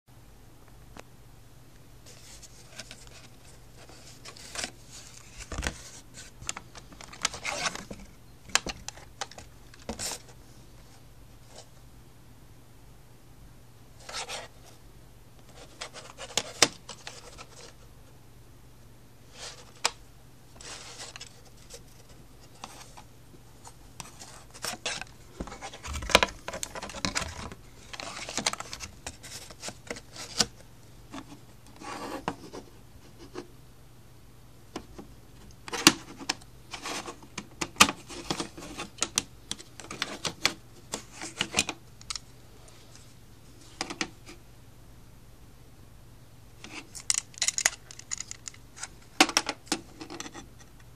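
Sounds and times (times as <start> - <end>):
plastic cassette cases clacking: 6.4 - 10.2, 24.0 - 30.5, 47.0 - 50.4.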